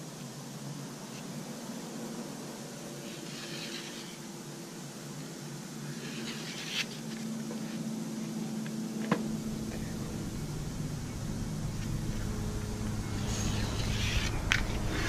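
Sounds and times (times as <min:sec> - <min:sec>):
pencil scratching: 0:03.0 - 0:04.2, 0:05.9 - 0:07.0
steady shop hum: 0:09.0 - 0:15.0.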